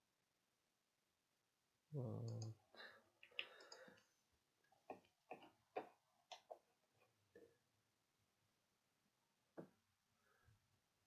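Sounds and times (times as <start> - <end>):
computer mouse clicks: 2.2 - 2.5, 3.2 - 4.0.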